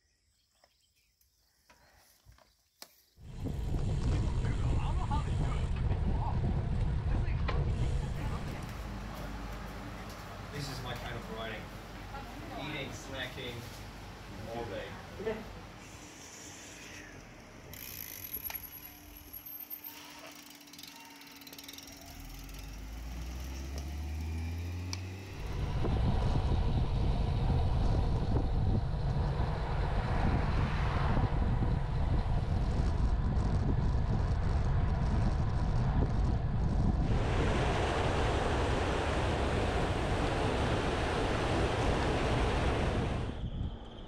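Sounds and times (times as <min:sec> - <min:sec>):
wind on microphone: 0:03.2 - 0:08.8, 0:25.3 - 0:44.0
low hum rising in pitch: 0:17.0 - 0:44.0
bicycle freewheels clicking: 0:17.7 - 0:25.0.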